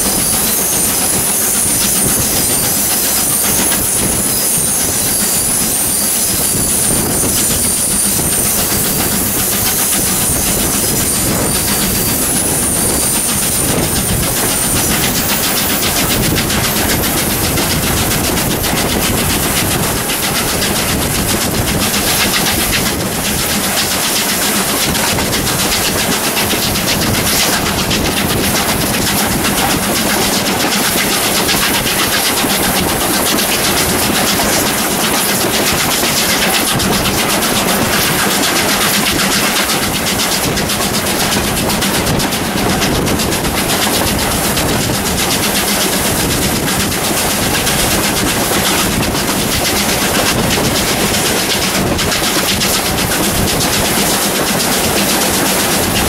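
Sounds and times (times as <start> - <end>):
high wheel squeal: 0.0 - 23.7
steam locomotive exhaust beat: 0.0 - 56.0
train wheels on rails: 0.0 - 56.0.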